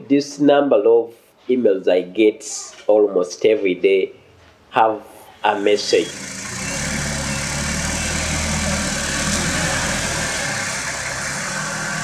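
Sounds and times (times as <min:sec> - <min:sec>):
van engine running: 0:05.5 - 0:12.0.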